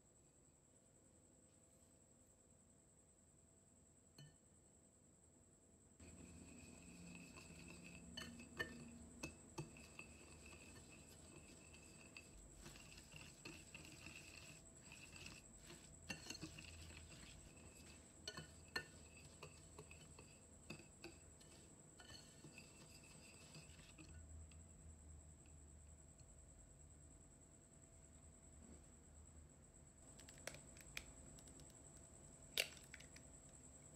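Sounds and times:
whisk clinking on glass: 6.0 - 24.2
whisk scraping glass bowl: 6.0 - 24.3.

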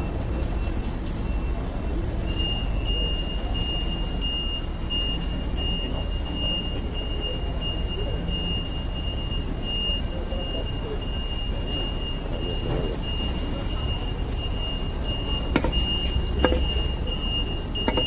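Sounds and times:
forklift engine rumbling: 1.2 - 18.0
reverse warning beeper: 1.3 - 18.0.

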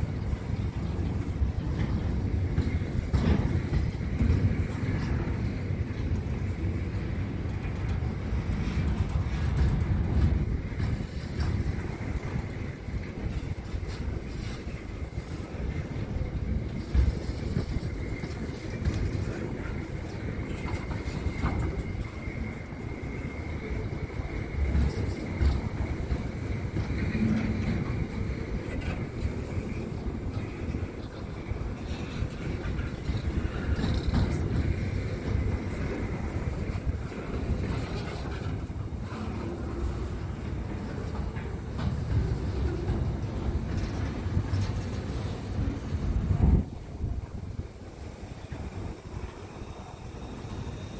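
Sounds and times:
freight train wheels rumbling on rail: 0.0 - 50.9.

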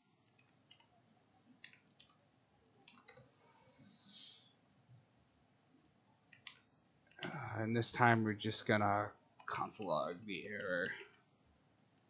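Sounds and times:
keyboard typing: 0.2 - 1.0, 1.6 - 3.4, 5.8 - 7.4.

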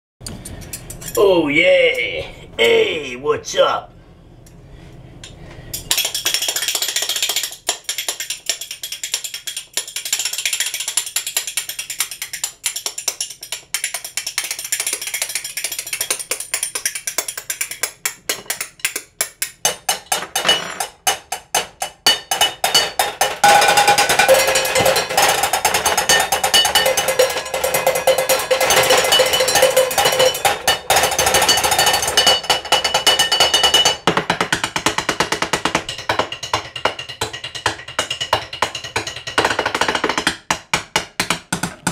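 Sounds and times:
spoons clacking: 5.8 - 34.0
stick drumming on metal pans: 5.8 - 41.9.

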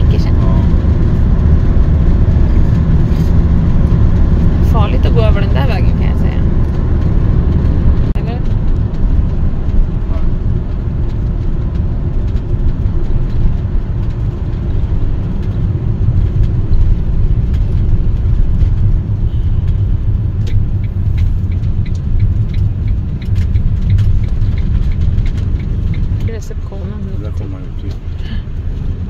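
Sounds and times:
motorhome engine and road rumble: 0.0 - 29.0
light ticking: 19.5 - 28.8.

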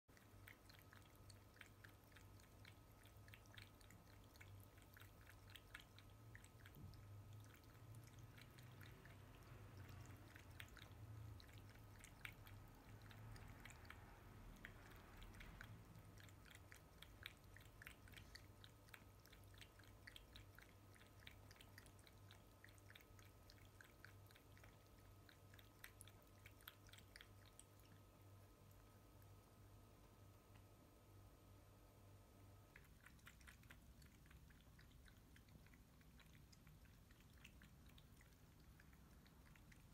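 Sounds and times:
cat lapping water: 0.1 - 30.8, 32.2 - 39.9.

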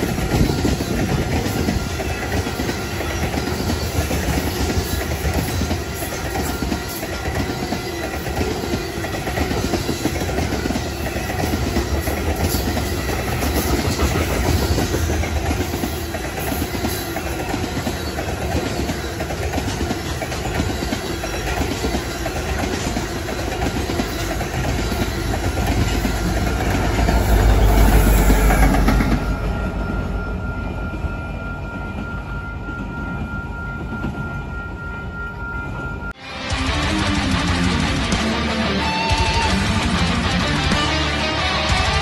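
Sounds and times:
wheels clicking over rail joints: 0.0 - 29.4
freight train wheels rumbling: 0.0 - 42.0.

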